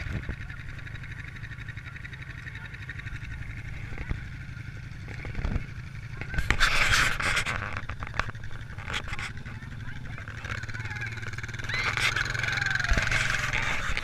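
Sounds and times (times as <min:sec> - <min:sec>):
atv engine idling: 0:00.0 - 0:14.0
rustling scraping burst: 0:06.4 - 0:08.0.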